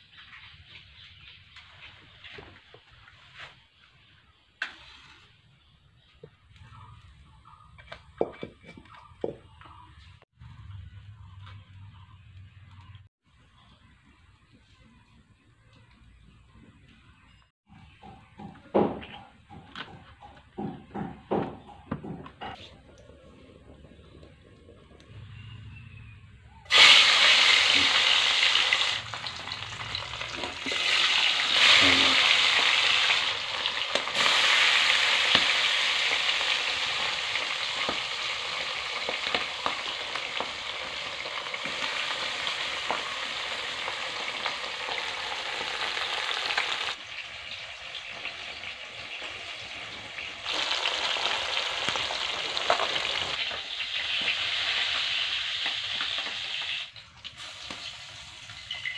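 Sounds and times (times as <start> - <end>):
fish sizzling in hot oil: 26.7 - 58.9.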